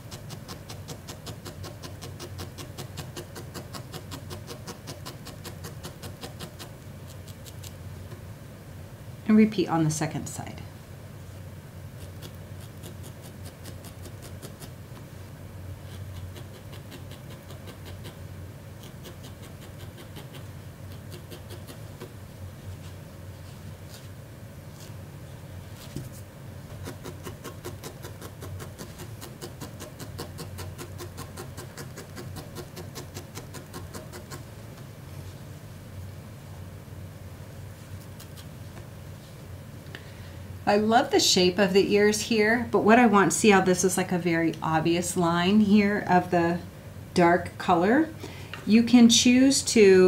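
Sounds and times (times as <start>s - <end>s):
felting needle poking wool: 0.0s - 8.2s, 12.0s - 14.8s, 15.8s - 18.2s, 26.7s - 34.5s.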